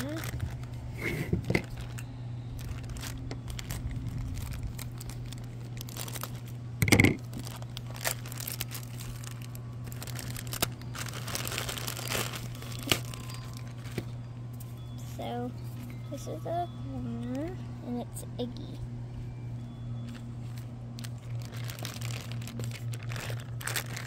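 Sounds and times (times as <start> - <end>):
plastic bag crinkling and tearing: 0.0 - 0.8, 1.4 - 14.2, 20.1 - 24.0.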